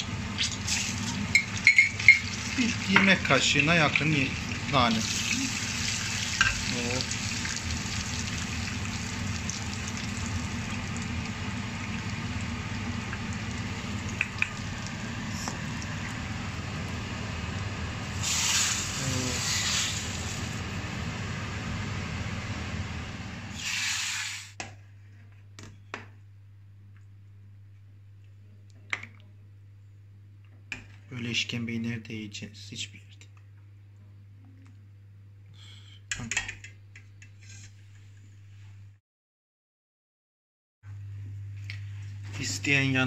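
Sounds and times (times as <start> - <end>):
herbs sizzling in hot oil: 0.0 - 16.8, 18.0 - 20.6, 23.5 - 24.6.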